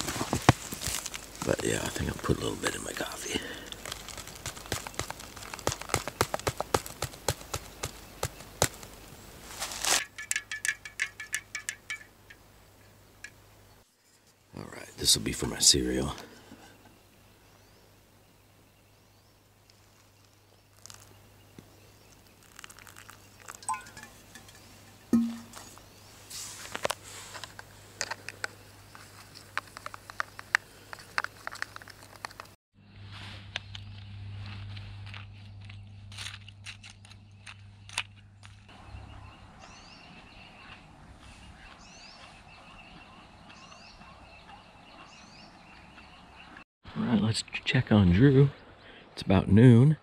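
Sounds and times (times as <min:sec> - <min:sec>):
foil pouch crinkling: 0:00.0 - 0:10.2, 0:19.7 - 0:21.2, 0:22.1 - 0:24.6, 0:26.6 - 0:32.6
spoon clicking against plastic bowl: 0:10.1 - 0:12.4
spoon clinking against a mug: 0:10.1 - 0:12.4, 0:22.6 - 0:25.6.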